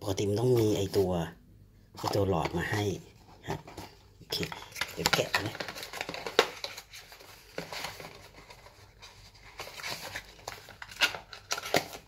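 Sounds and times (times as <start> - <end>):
packaging rustling and clicking: 3.6 - 12.0.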